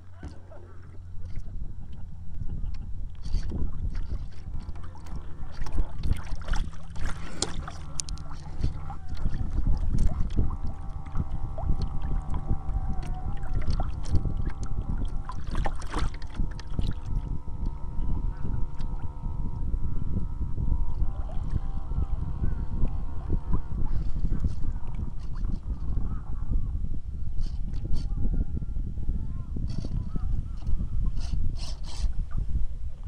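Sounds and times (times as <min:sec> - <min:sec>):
water rushing along boat hull: 0:00.0 - 0:26.4
faint hum: 0:00.0 - 0:33.0.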